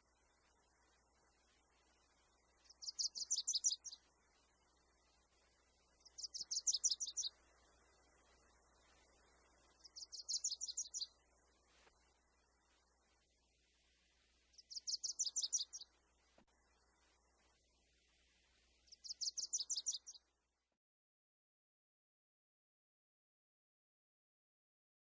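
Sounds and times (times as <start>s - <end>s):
bird singing high-pitched trills: 2.7s - 4.0s, 6.0s - 7.3s, 9.8s - 11.2s, 14.6s - 15.9s, 19.0s - 20.2s.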